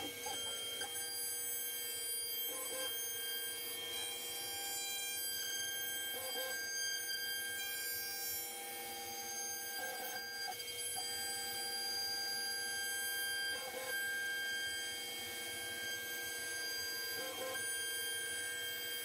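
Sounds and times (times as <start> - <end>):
cnc router whining: 0.0 - 19.0.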